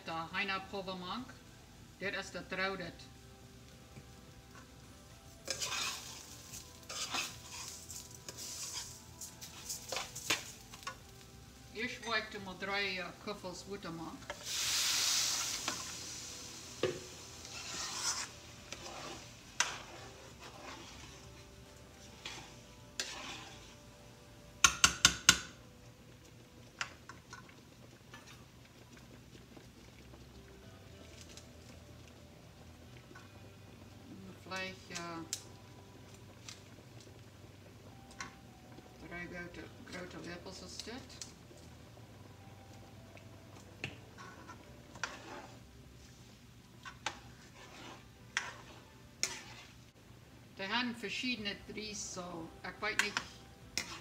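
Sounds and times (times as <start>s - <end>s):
rice sizzling in pan: 0.1s - 54.0s
spoon scraping frying pan: 4.5s - 11.2s, 14.2s - 23.9s, 43.8s - 50.0s, 52.7s - 54.0s
spoon knocking against pan: 24.6s - 25.5s.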